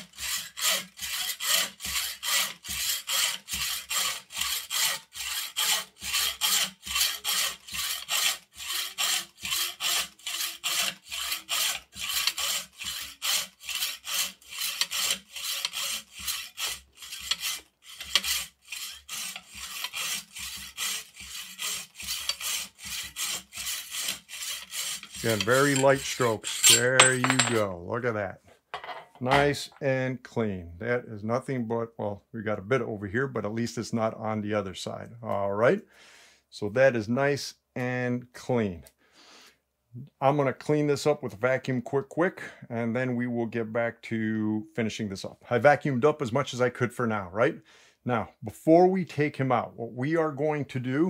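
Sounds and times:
hacksaw cutting metal tube: 0.0 - 27.6.

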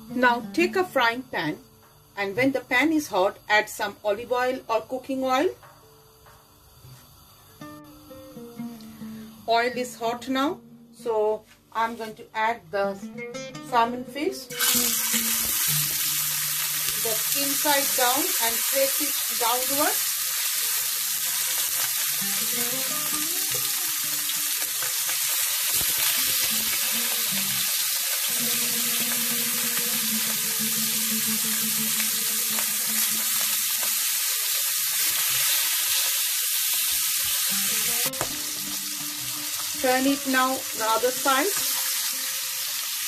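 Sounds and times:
fish sizzling in hot oil: 14.6 - 43.0.

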